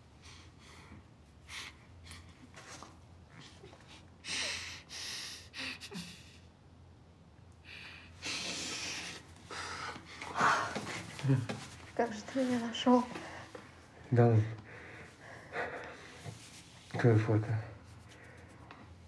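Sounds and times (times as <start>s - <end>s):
low room hum: 0.0s - 19.0s
people breathing while kissing: 7.6s - 11.1s.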